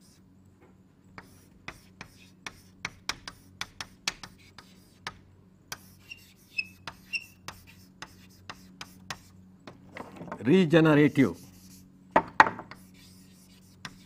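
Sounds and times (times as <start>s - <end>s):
low electrical hum: 0.0s - 14.0s
pen writing on surface: 1.2s - 9.3s, 12.5s - 14.0s
pen squeaks: 5.8s - 7.4s.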